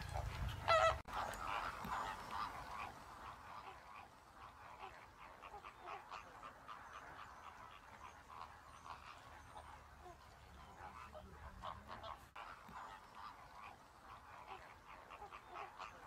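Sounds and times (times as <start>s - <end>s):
waterbirds calling: 0.0s - 16.0s.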